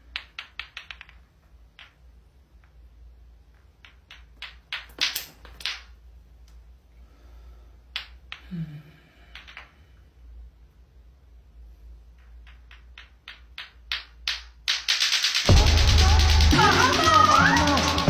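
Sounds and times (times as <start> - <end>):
clacker toy balls clacking: 0.0 - 6.0, 12.2 - 18.0.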